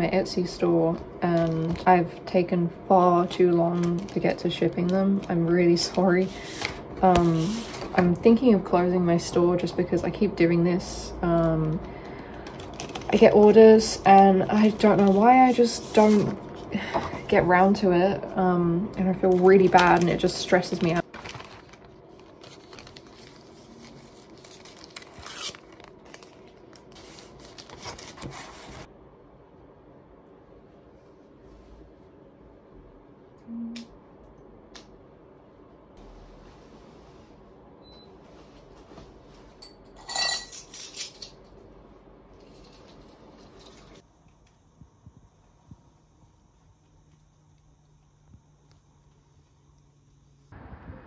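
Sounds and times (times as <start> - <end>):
plastic packaging crinkling: 12.4 - 13.5, 19.2 - 28.9.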